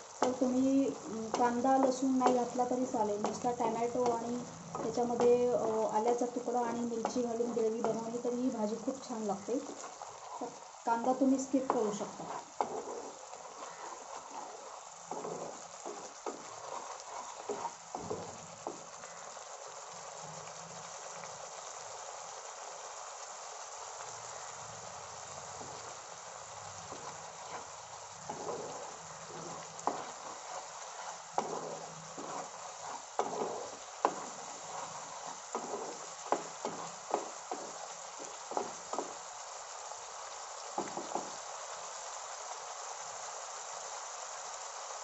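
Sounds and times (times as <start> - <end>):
gravy sizzling in oil: 0.0 - 45.0
spatula scraping a pan: 0.1 - 19.1, 25.6 - 26.0, 26.8 - 39.3, 40.8 - 41.4.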